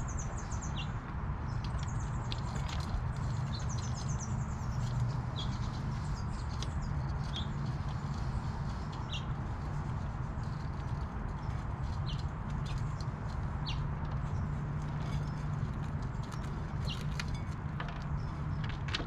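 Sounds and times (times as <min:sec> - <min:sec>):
birds chirping: 0:00.0 - 0:19.0
low outdoor rumble: 0:00.0 - 0:19.0
squirrels gnawing clicks: 0:10.4 - 0:19.0.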